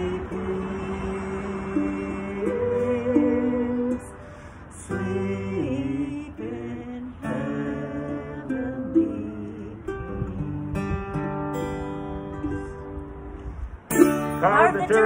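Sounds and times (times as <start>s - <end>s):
person singing: 0.0s - 10.4s, 13.9s - 15.0s
ukulele: 0.0s - 15.0s
strummed acoustic guitar: 7.2s - 15.0s.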